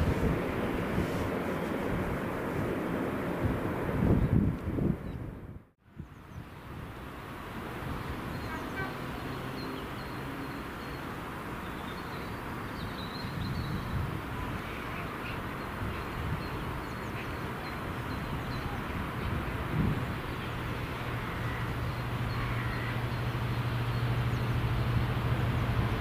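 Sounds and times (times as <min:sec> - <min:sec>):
birds chirping: 0:07.9 - 0:25.9
diesel locomotive engines rumbling: 0:13.8 - 0:26.0.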